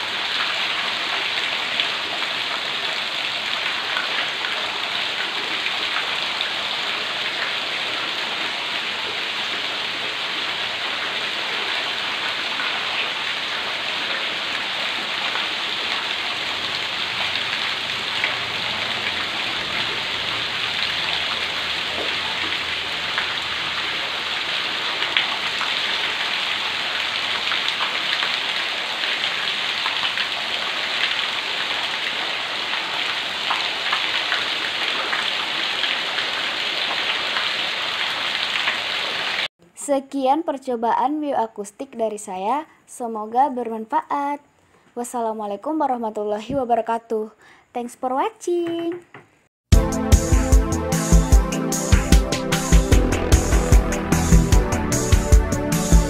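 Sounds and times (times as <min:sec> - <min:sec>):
running water splashing: 0:00.0 - 0:39.5.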